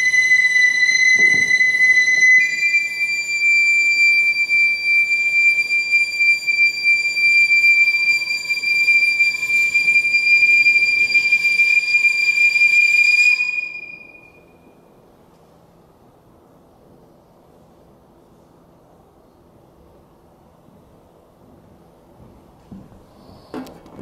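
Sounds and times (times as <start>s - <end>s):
piccolo holding high note: 0.0s - 14.6s.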